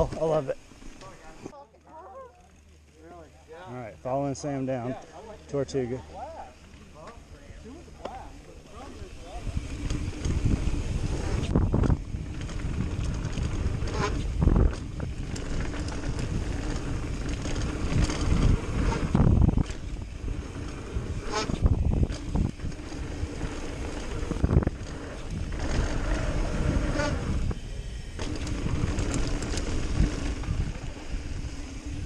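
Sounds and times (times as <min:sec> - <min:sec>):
tyres rumbling over dirt: 0:02.6 - 0:32.0
wind buffeting microphone: 0:09.1 - 0:32.0
bike landing thumps and rattles: 0:11.4 - 0:26.2, 0:28.2 - 0:30.6.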